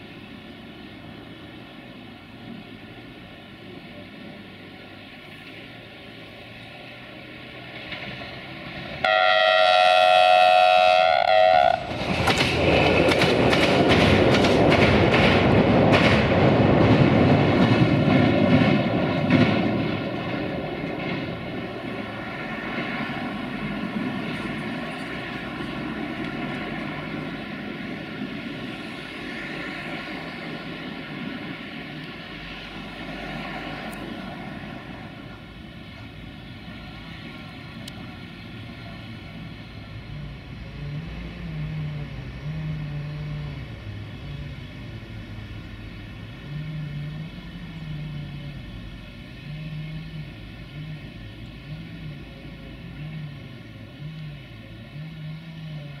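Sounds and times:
train wheels clicking over rail joints: 6.5 - 9.1, 11.8 - 56.0
train horn: 9.0 - 11.9, 46.4 - 48.5.

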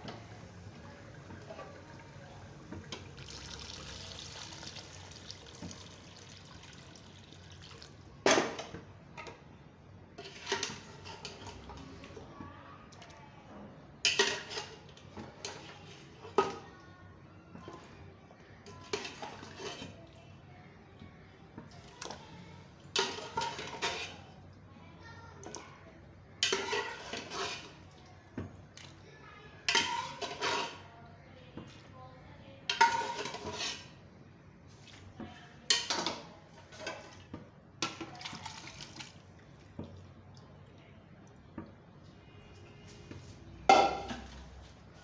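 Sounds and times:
metal ladle scraping cooking pot: 18.8 - 20.0, 26.4 - 27.8, 29.7 - 30.9, 32.7 - 34.0.

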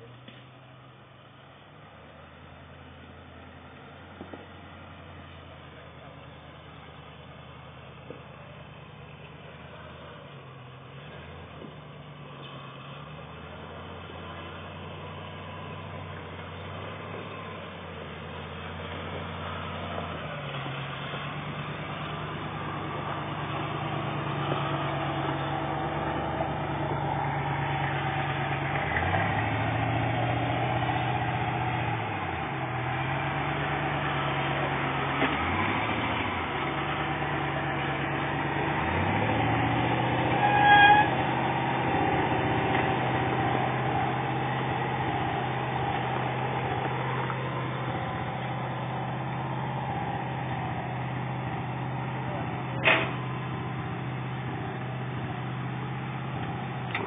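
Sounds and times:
off-road engine revving: 1.5 - 57.0
horn toot: 40.3 - 41.2.

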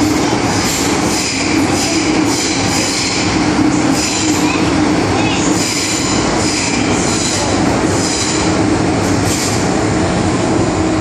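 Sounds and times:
train wheels rumbling on rail: 0.0 - 11.0.

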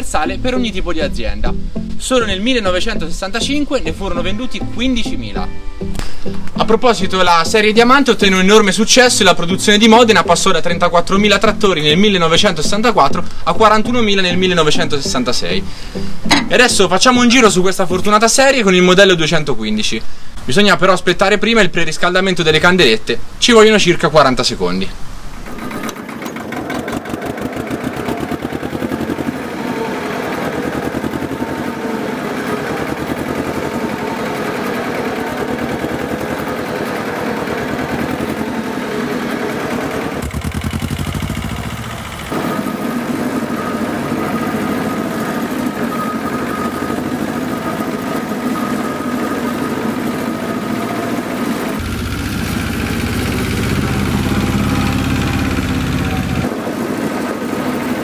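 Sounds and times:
tractor diesel engine running: 25.4 - 58.0.

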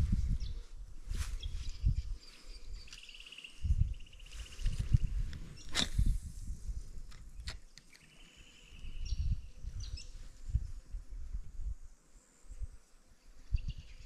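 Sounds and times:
wind rumbling: 0.0 - 2.8, 3.6 - 7.6
microphone handling noise: 3.7 - 7.6.

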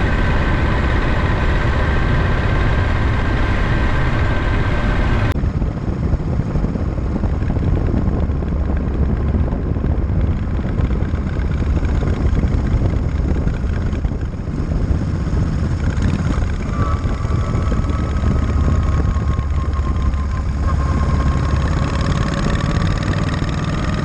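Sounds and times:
high-pitched whine: 0.0 - 5.6, 15.2 - 24.0
motorcycle engine rumbling: 0.0 - 24.0
wind rush: 0.0 - 24.0.

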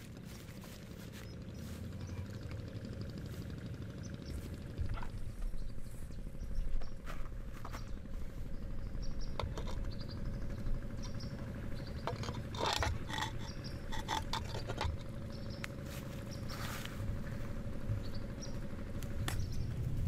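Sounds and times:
low outdoor hum: 0.0 - 20.0
small animals chirping: 8.8 - 16.8.

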